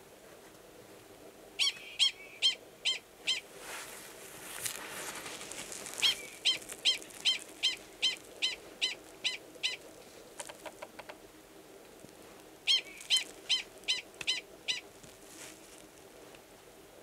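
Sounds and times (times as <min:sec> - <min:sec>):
prairie dog barking: 0:01.6 - 0:03.4, 0:05.9 - 0:11.1, 0:12.7 - 0:15.0.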